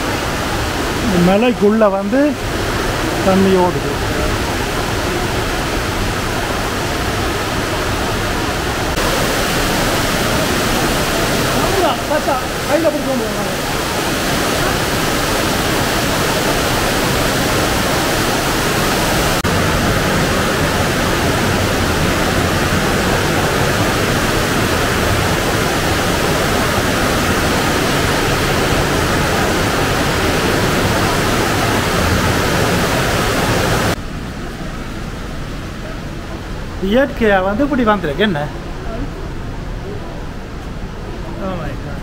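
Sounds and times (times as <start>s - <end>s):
water rushing through cave: 0.0s - 42.0s.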